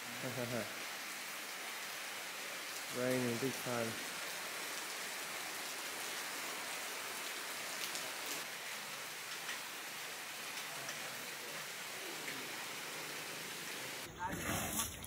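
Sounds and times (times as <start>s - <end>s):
heavy rain falling: 0.0s - 14.1s
raindrops ticking: 9.0s - 13.8s.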